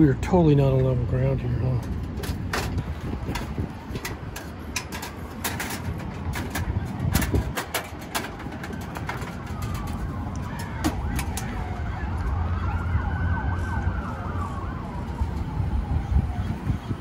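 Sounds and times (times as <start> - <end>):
camp cookware clicking and knocking: 1.9 - 9.9
siren falling tone: 9.0 - 16.6.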